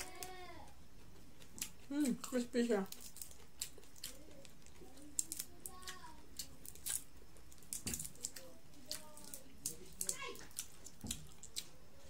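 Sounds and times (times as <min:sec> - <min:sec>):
crispy shrimp shell crackling: 0:01.4 - 0:11.8.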